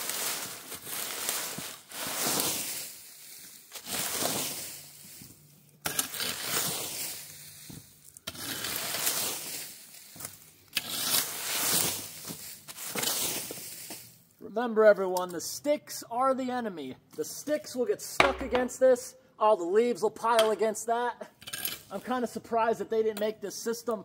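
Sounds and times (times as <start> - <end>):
rake scraping through wet leaves: 0.0 - 14.2.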